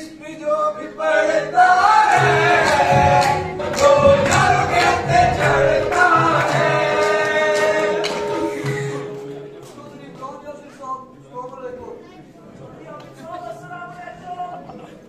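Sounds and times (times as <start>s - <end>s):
men singing in unison: 0.5s - 9.2s
rhythmic hand-clapping: 1.8s - 9.8s.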